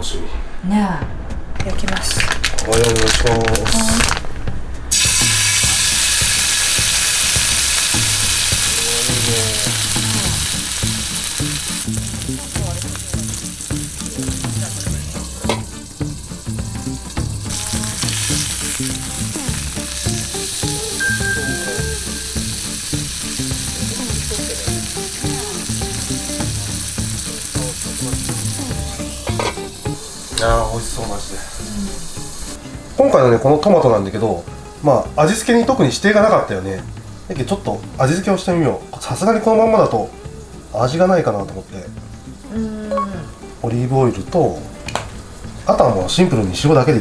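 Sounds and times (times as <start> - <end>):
meat sizzling in a frying pan: 4.9 - 33.7.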